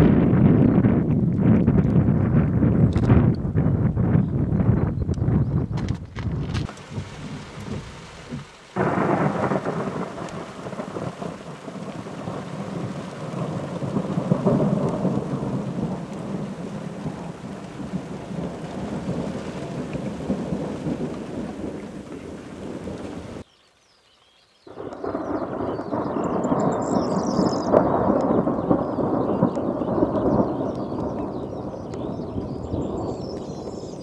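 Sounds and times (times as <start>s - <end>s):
thunder rumbling: 0.0s - 23.4s, 24.7s - 34.0s
heavy rain on a car: 6.6s - 23.4s.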